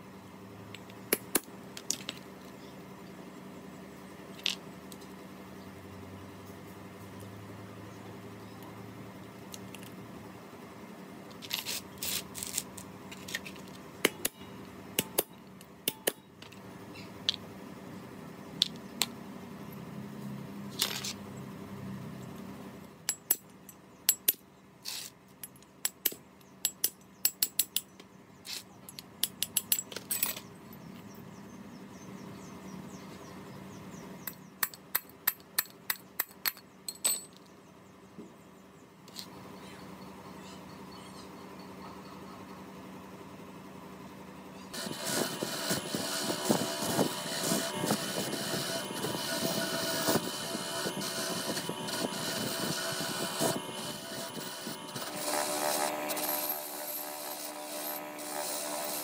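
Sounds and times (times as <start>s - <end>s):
metal parts and tools clinking: 28.5s - 30.5s, 35.6s - 37.5s.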